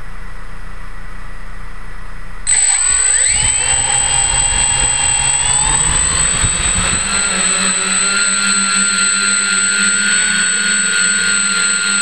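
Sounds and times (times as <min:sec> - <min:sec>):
low steady rumble: 0:00.0 - 0:08.1
drone motors whining: 0:02.5 - 0:09.6.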